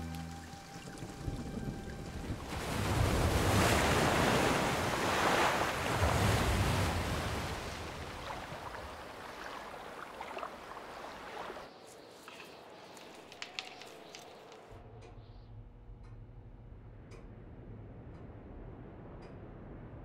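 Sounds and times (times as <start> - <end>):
ocean surf washing over rocks: 0.8 - 11.6.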